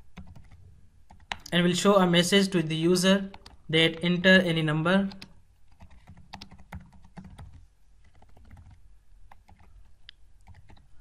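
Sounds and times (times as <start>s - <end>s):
keyboard typing clicks: 5.1s - 10.9s.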